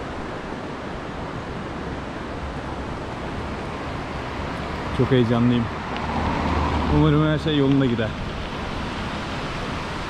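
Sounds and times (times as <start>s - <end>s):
river rushing over rocks: 0.0s - 10.0s.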